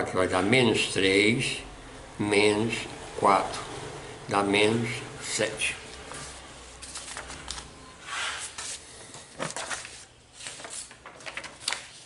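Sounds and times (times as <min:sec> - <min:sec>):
paper rustling and sliding: 0:05.9 - 0:12.0.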